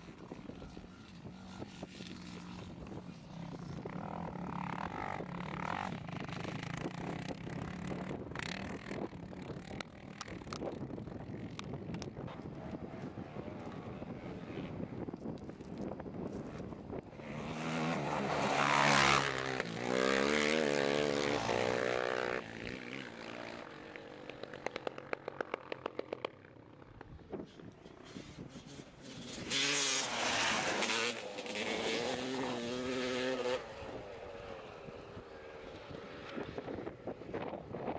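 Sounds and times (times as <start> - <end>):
wind noise on microphone: 0.0 - 23.3, 26.9 - 37.9
quad bike engine running: 0.0 - 37.9
dirt bike engine revving: 16.4 - 24.9, 27.9 - 36.9.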